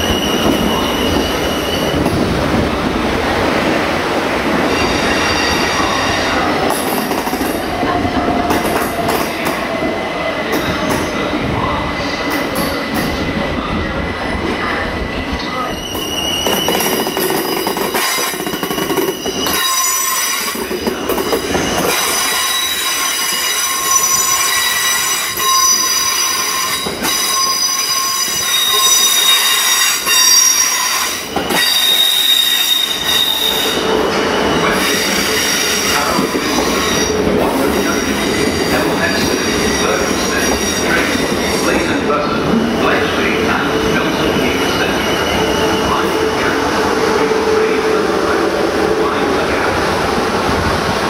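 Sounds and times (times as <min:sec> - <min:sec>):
train wheels squealing: 0:00.0 - 0:02.1, 0:04.7 - 0:07.6, 0:14.6 - 0:47.8.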